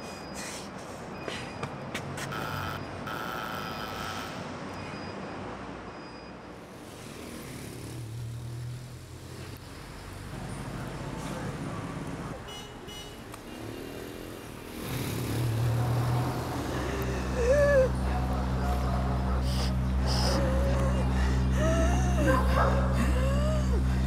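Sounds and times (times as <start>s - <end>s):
low traffic hum: 0.0s - 24.0s
cars passing: 6.6s - 24.0s.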